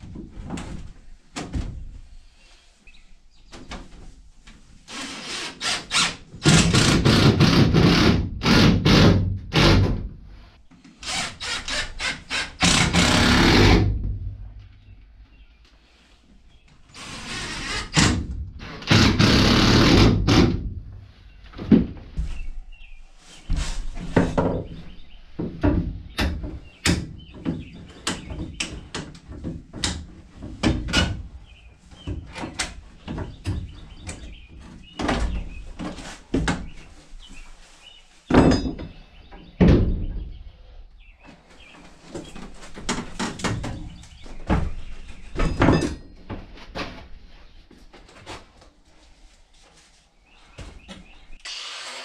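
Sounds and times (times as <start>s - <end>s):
wood and sheet metal knocks: 38.3s - 39.0s.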